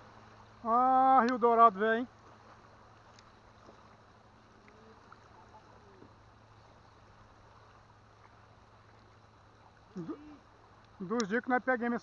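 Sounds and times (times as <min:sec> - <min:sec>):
soft ticks: 0:01.2 - 0:01.4, 0:03.1 - 0:03.4, 0:10.8 - 0:11.4.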